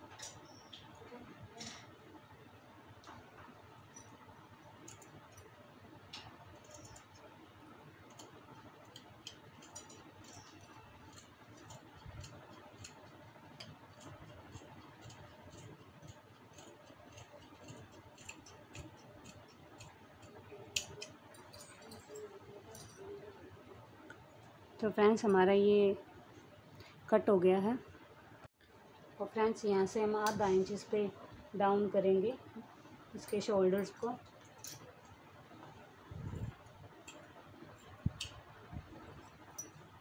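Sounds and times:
scissors cutting fabric: 8.1 - 22.2.

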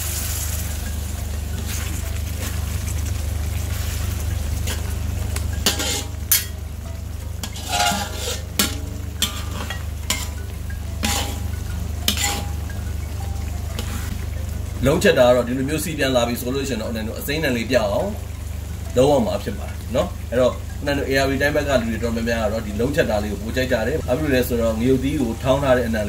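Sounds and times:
sauce sizzling: 0.0 - 26.0
steady low hum: 0.0 - 26.0
metal utensils scraping a wok: 5.5 - 6.6, 7.4 - 12.7, 13.8 - 14.2.

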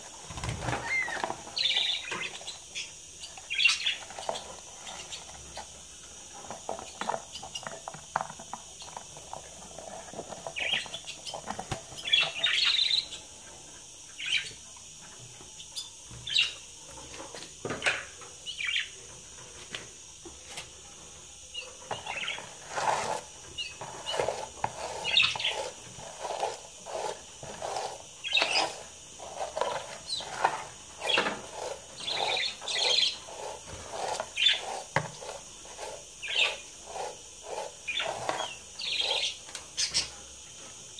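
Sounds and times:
budgerigars chirping: 37.9 - 40.1.

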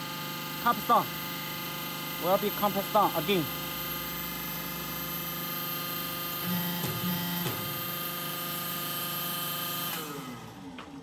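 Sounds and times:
hydraulic machine humming: 0.0 - 11.0.

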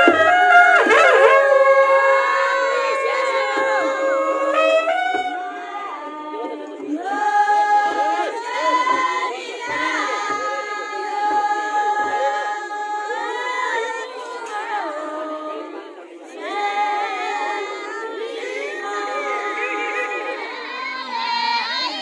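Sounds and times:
women singing together: 0.0 - 22.0.

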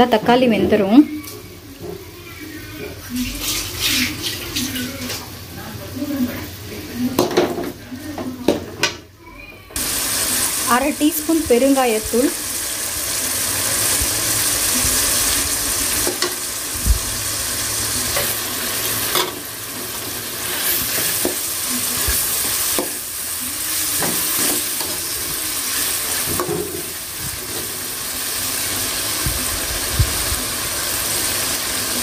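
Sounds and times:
vegetables sizzling in hot oil: 9.8 - 32.0.

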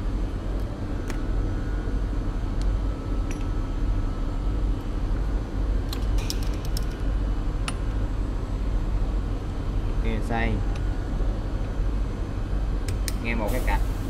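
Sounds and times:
low machine hum: 0.0 - 14.0.

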